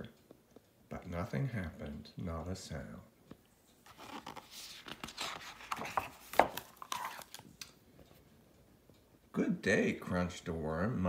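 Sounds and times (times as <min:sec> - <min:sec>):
paper page turning: 0:03.8 - 0:07.8.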